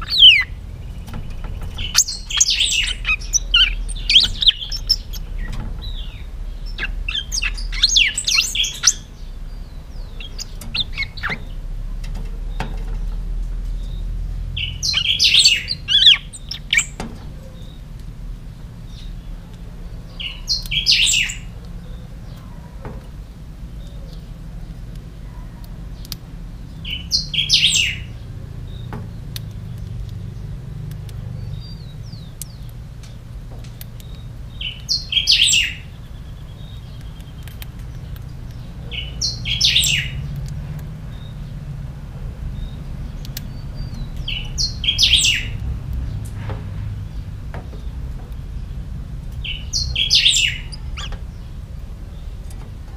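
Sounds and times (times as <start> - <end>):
songbird singing: 0.0 - 52.9.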